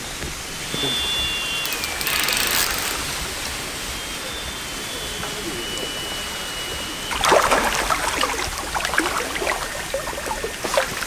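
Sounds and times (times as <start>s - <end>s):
fish splashing at water surface: 7.0s - 11.0s.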